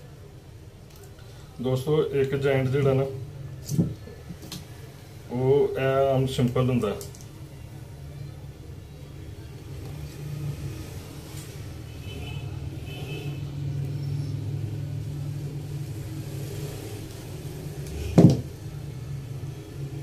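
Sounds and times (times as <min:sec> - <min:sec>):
handling wire and pliers: 0:06.9 - 0:07.3.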